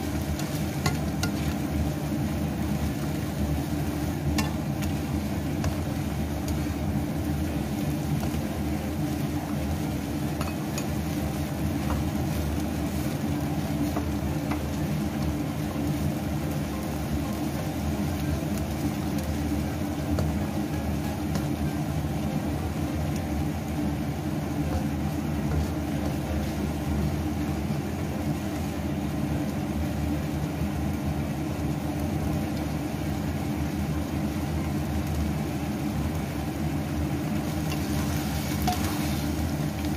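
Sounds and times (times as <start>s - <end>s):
food sizzling in a wok: 0.0s - 39.9s
low mechanical hum: 0.0s - 39.9s.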